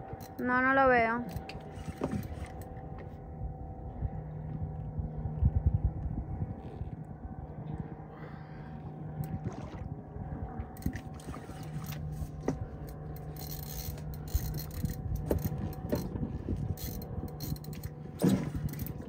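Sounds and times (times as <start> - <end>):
steady low hum: 0.0 - 19.0
fishing reel scraping and clicking: 1.3 - 2.7, 10.8 - 17.9, 18.6 - 19.0.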